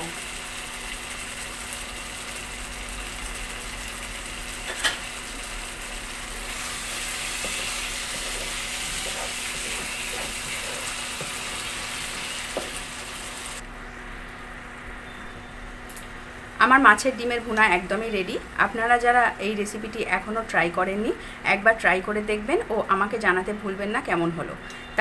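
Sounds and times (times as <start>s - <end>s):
curry sizzling in a pan: 0.0s - 13.6s.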